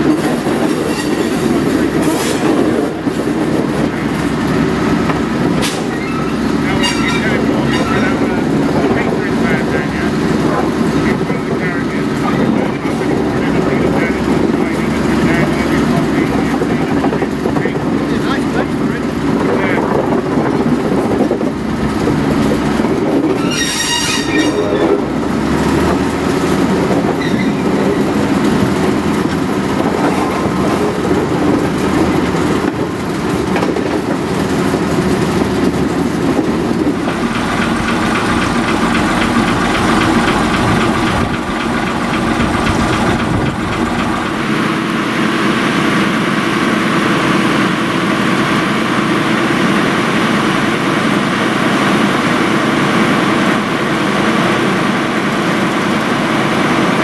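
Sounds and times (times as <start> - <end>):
wheels on rails: 0.0 - 14.6, 17.0 - 57.0
diesel locomotive engine: 0.0 - 57.0
high-pitched squeal: 5.7 - 8.4, 23.3 - 25.1, 27.2 - 27.6.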